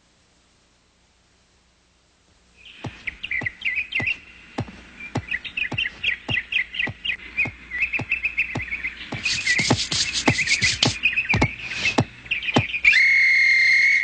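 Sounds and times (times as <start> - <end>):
bird-like chirping tweets: 2.6 - 14.0
ticking beat: 2.9 - 12.7.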